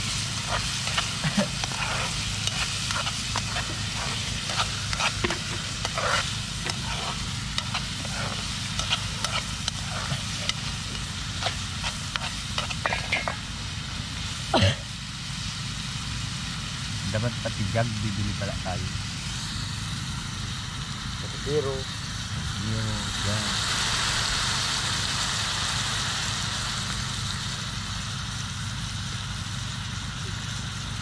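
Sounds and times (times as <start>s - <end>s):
utensil scraping a pan: 0.0s - 13.5s
food sizzling in a pan: 0.0s - 31.0s.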